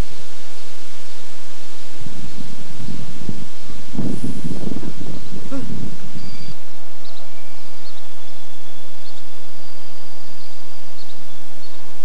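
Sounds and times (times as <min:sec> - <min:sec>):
outdoor background hiss: 0:00.0 - 0:12.0.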